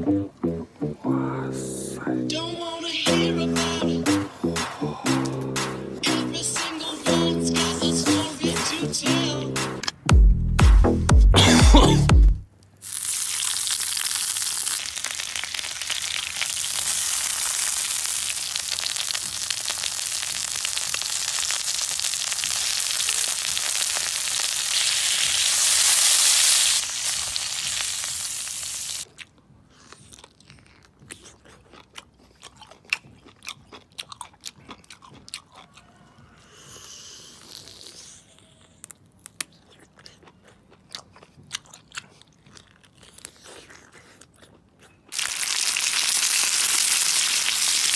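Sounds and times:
food sizzling on hot stone: 0:12.8 - 0:29.1, 0:45.1 - 0:47.9
chewing clicks: 0:30.0 - 0:36.0.

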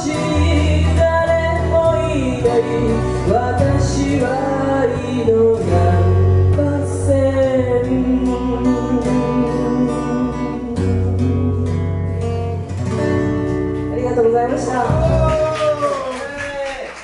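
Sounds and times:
woman singing: 0:00.0 - 0:11.8
electric bass: 0:00.0 - 0:15.7
acoustic-electric guitar: 0:00.0 - 0:17.0.

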